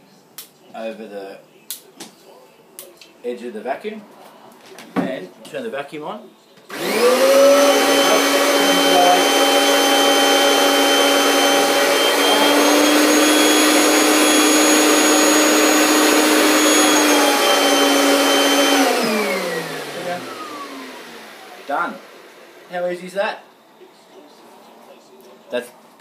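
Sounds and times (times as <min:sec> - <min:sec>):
vacuum motor spinning down: 0:06.7 - 0:22.7
vacuum cleaner running: 0:06.7 - 0:23.8.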